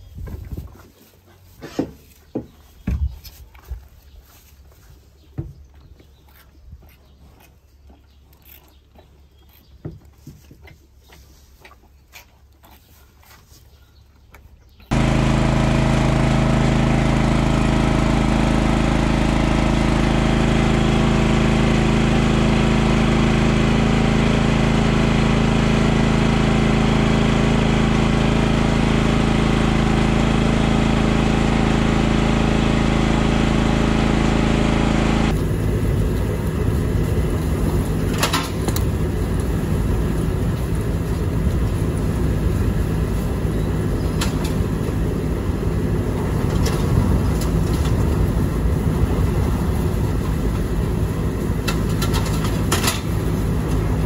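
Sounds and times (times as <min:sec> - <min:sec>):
machine engine running steadily: 0:14.9 - 0:54.0
rough rattling machine: 0:14.9 - 0:54.0.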